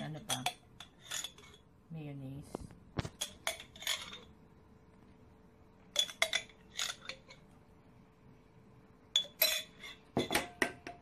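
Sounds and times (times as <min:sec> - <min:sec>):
spoon clinking against bowl: 0:00.0 - 0:01.6, 0:05.9 - 0:07.4, 0:09.1 - 0:11.0.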